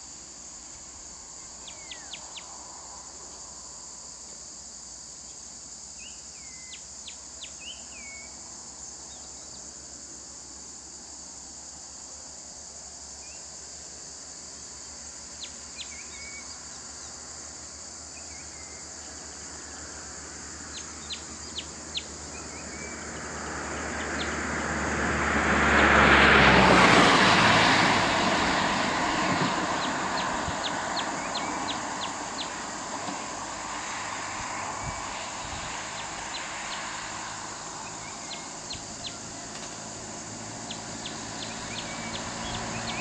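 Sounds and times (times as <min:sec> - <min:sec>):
high insect drone: 0:00.0 - 0:43.0
vehicle driving past: 0:19.5 - 0:43.0
bird chirps: 0:20.7 - 0:23.1.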